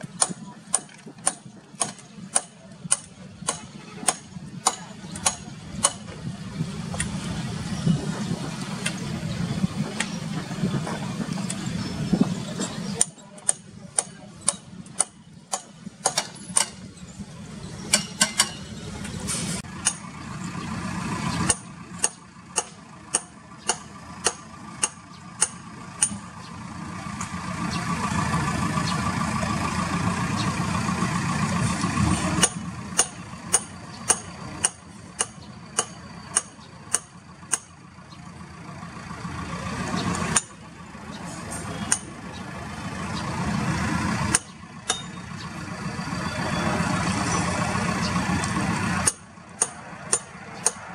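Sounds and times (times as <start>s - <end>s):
jet engines rumbling and whining: 0.0s - 50.9s.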